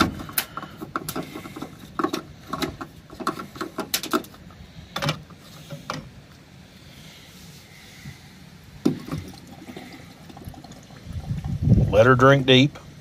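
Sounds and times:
fuel cap twisting clicks and scrapes: 0:00.0 - 0:06.4.

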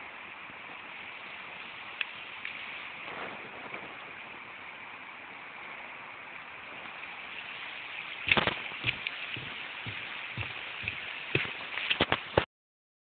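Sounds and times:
outdoor hiss: 0:00.0 - 0:12.5
footsteps on dirt path: 0:08.3 - 0:12.4.

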